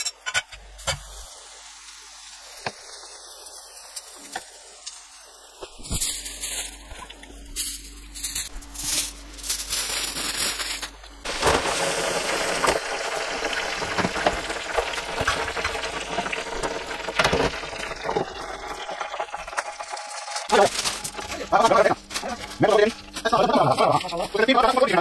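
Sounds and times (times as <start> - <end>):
oil sizzling in fryer: 0.0 - 25.0.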